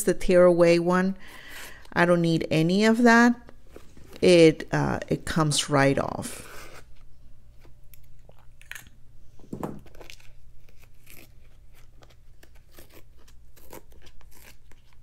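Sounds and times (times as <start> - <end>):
stabilizer paper tearing: 9.9 - 15.0.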